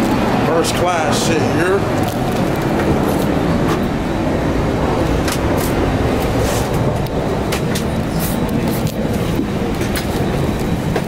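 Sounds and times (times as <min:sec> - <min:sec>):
vehicle rumble: 0:00.0 - 0:11.0.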